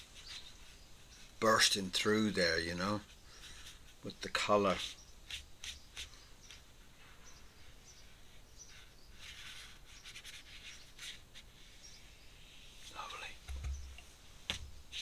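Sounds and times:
ink brush on paper: 3.0 - 13.2.

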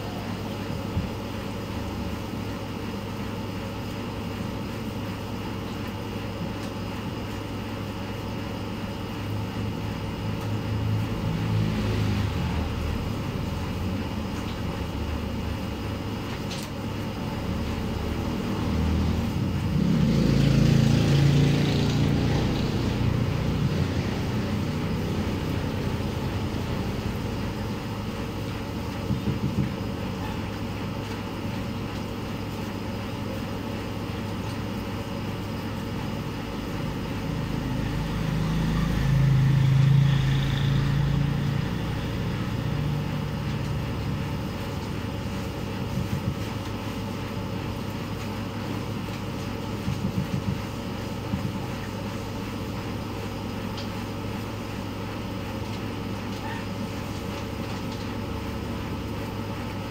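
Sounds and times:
steady low hum: 0.0 - 59.9
passing engine: 10.7 - 13.9, 18.0 - 27.8, 37.4 - 44.3.

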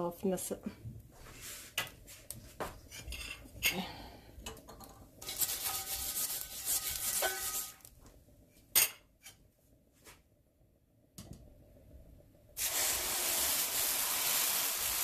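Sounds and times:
scraping on cast-iron skillet: 1.2 - 3.7, 5.2 - 7.9.

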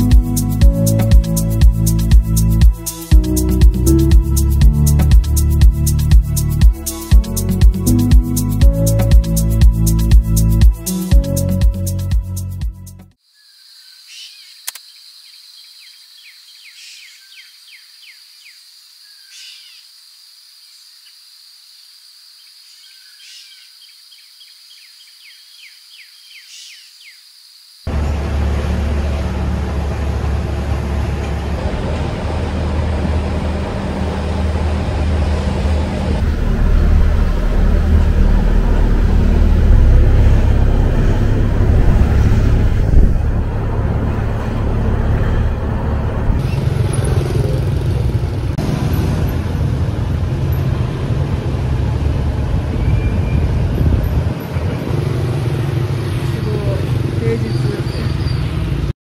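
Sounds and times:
low engine drone: 0.0 - 13.0, 27.9 - 52.8
road and wind noise: 27.9 - 58.9
scooters and cars passing: 27.9 - 58.9.

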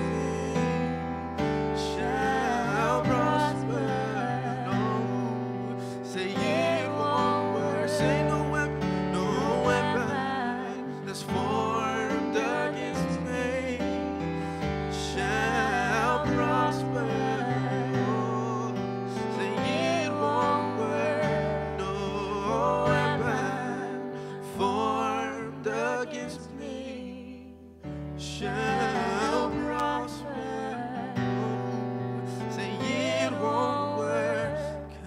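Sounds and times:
electric keyboard chords: 0.0 - 26.2
person singing with vibrato: 0.0 - 27.6, 28.2 - 35.0.

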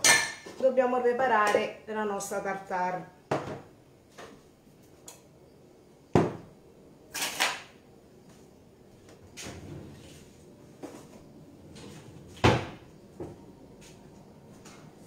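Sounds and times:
sharp knock in kitchen: 3.3 - 3.7, 6.1 - 6.5.

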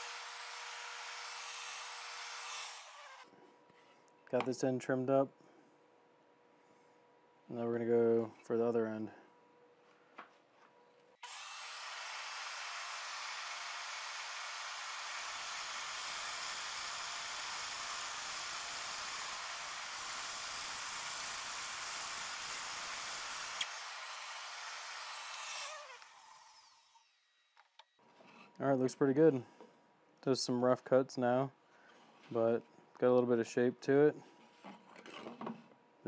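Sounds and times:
bandsaw cutting wood: 0.0 - 3.3, 11.2 - 27.1.

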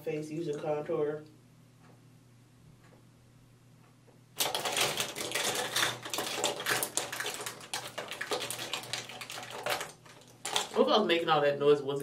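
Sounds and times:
small hard items rattling: 4.4 - 11.1.

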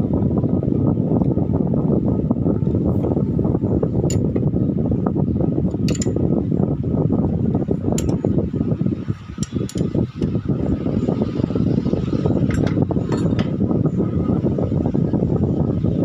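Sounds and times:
low rumbling background noise: 0.0 - 16.0
wrench clicking on metal: 5.8 - 6.2, 8.0 - 8.2, 9.4 - 10.3.

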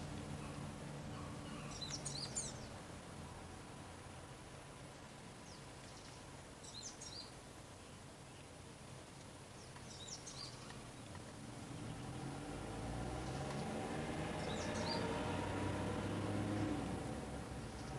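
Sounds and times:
bird chirping: 0.0 - 2.8, 5.4 - 8.5, 9.6 - 12.4, 13.2 - 15.3, 17.6 - 17.9.

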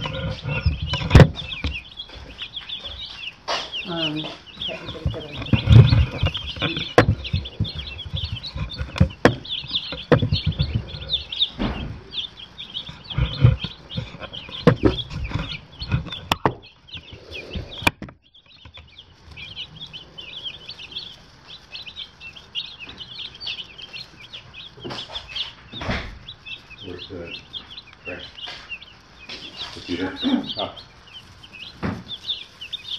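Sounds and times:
low thumps and knocks: 0.0 - 19.7
chicks peeping: 0.0 - 32.9.

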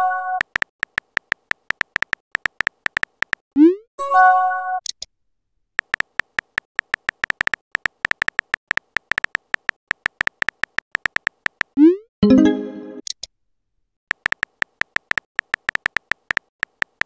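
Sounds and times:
phone keyboard tapping clicks: 0.4 - 3.4, 5.8 - 11.8, 14.1 - 17.0.

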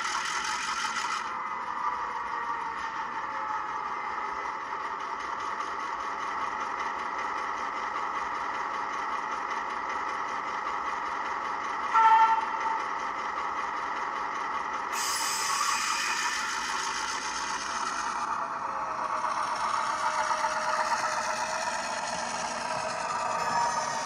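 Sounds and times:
diesel locomotive idling: 0.0 - 24.0
hiss: 14.9 - 18.2.

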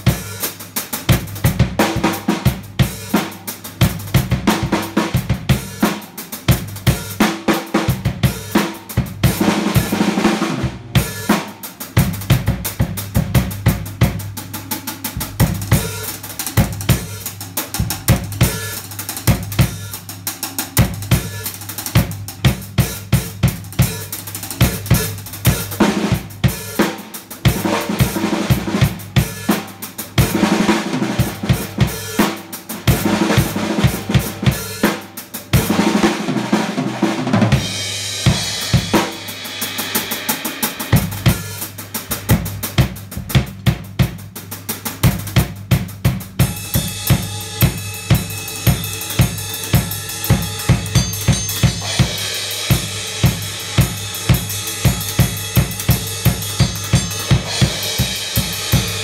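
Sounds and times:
drum kit groove: 0.0 - 59.0
ringing cymbal wash: 46.5 - 59.0.

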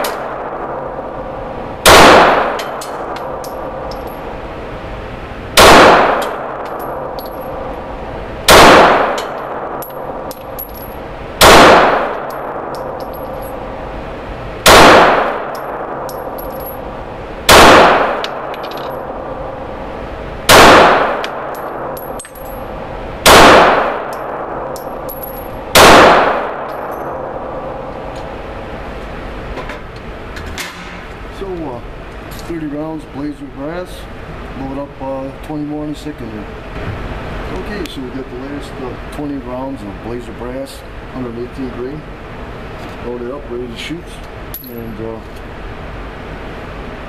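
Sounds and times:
pistol shots echoing indoors: 0.0 - 3.9, 5.6 - 7.9, 8.5 - 10.3, 11.4 - 13.2, 14.6 - 16.9, 17.5 - 19.7, 20.5 - 27.7.

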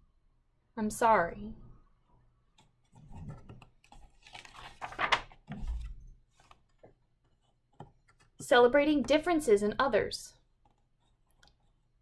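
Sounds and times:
paper page rustling: 2.8 - 7.6.

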